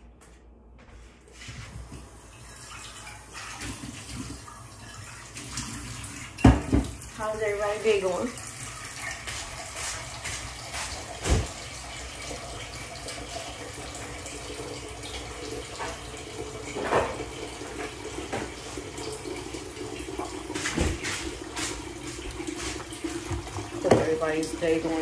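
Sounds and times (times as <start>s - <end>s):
water running from tap: 1.6s - 25.0s
pots or dishes clunking: 16.7s - 18.6s.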